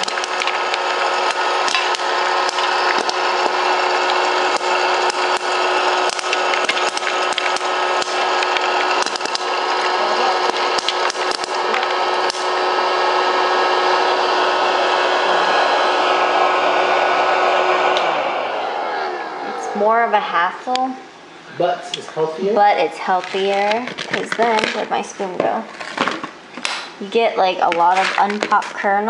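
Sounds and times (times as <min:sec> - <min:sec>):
popcorn kernels popping: 0:00.0 - 0:12.6, 0:23.1 - 0:27.0, 0:27.6 - 0:29.0
popcorn popper blower fan hissing: 0:00.0 - 0:29.0.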